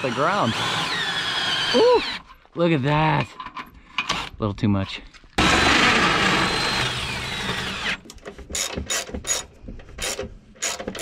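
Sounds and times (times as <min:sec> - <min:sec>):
cordless drill whining: 0:00.0 - 0:02.3, 0:05.4 - 0:11.0.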